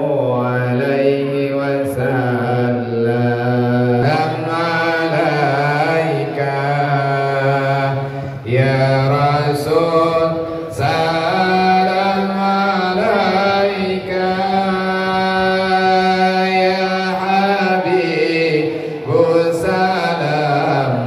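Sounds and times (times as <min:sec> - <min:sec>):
man chanting slow melody: 0:00.0 - 0:21.0.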